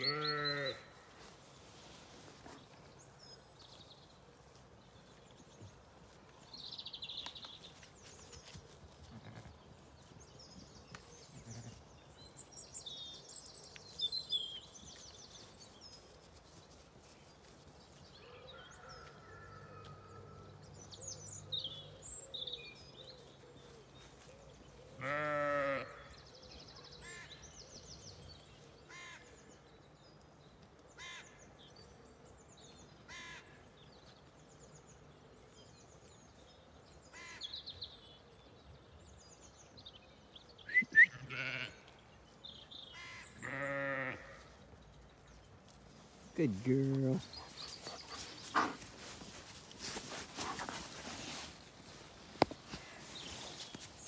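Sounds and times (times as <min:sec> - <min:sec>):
sheep bleating: 0:00.0 - 0:00.9, 0:25.0 - 0:26.1, 0:41.0 - 0:41.8, 0:43.4 - 0:44.5
small birds chirping: 0:33.8 - 0:54.0.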